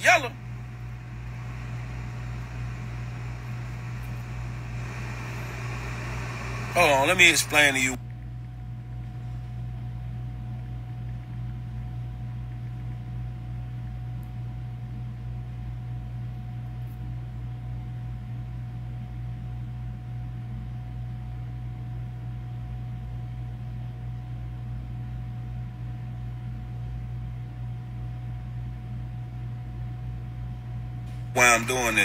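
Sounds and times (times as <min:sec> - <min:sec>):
even hiss: 0:00.0 - 0:08.0
low hum: 0:00.0 - 0:32.0.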